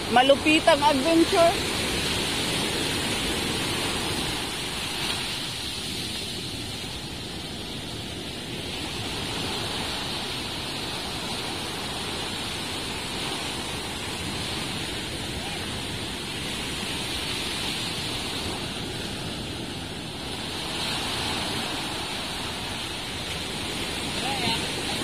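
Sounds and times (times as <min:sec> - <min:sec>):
sea surf washing on shore: 0:00.0 - 0:25.0.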